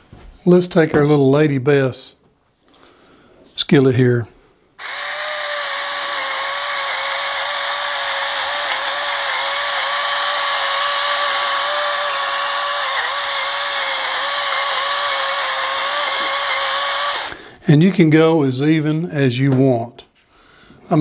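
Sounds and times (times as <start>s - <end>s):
salt grinder motor whine: 4.8s - 17.4s.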